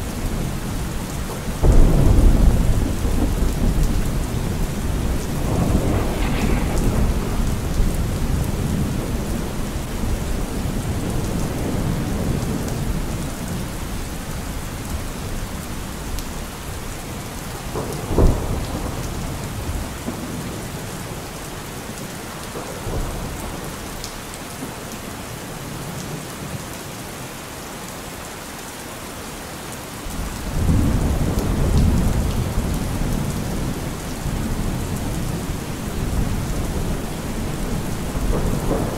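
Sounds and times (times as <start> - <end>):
steady rain: 0.0 - 38.9
thunder rumbling and clapping: 0.1 - 15.4, 17.4 - 21.2, 30.1 - 38.9.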